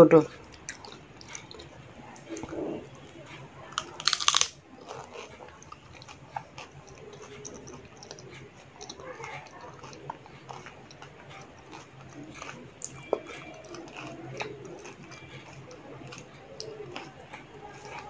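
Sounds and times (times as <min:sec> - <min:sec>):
chewing and mouth clicks: 0:00.3 - 0:18.0
crunchy bite: 0:03.8 - 0:05.2.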